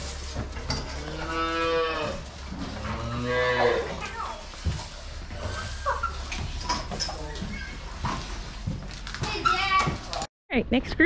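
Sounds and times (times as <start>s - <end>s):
cow mooing: 0.9s - 4.0s.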